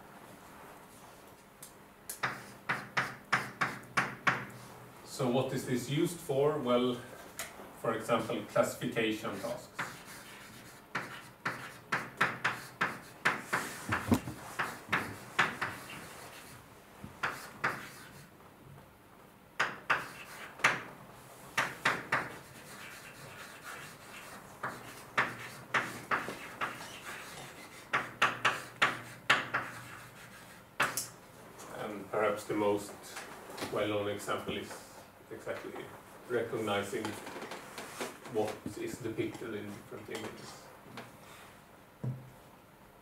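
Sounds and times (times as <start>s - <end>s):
writing on board: 2.2s - 4.5s, 9.4s - 16.6s, 17.2s - 18.3s, 19.6s - 20.8s, 21.6s - 31.0s.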